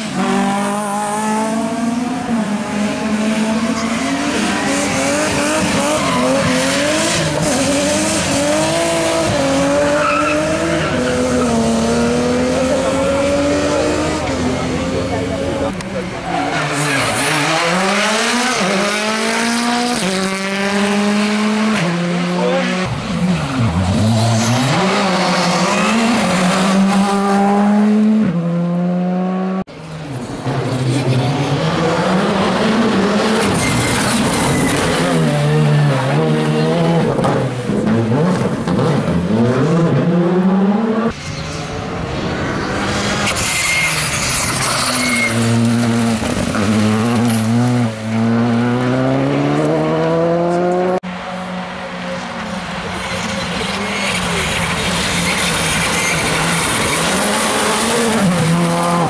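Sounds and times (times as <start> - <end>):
rally car engines revving: 0.0 - 59.0
tyres squealing: 43.2 - 45.6.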